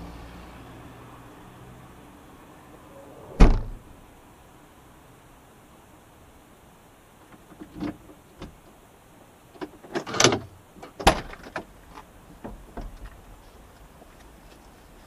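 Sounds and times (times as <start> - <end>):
clicks and knocks in car cabin: 9.6 - 13.2.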